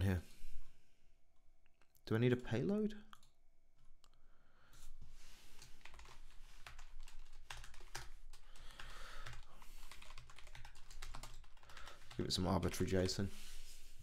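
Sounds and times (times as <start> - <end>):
computer keyboard typing: 5.6 - 13.2.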